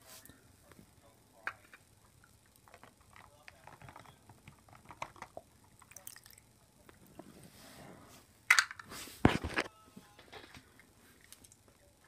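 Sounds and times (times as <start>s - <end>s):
handling rustling and clicks: 2.6s - 6.0s.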